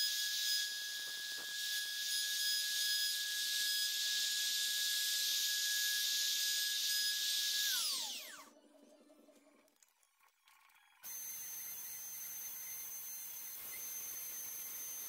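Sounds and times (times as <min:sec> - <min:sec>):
router motor whining: 0:00.0 - 0:09.5, 0:11.0 - 0:15.0
motor spinning down: 0:07.4 - 0:09.7.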